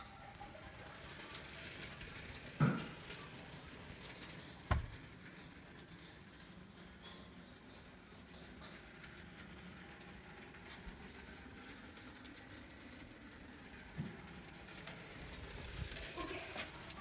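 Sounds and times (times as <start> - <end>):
patter of falling snow: 0.0 - 17.0
small knocks: 4.7 - 5.0
soft thump: 4.7 - 5.0.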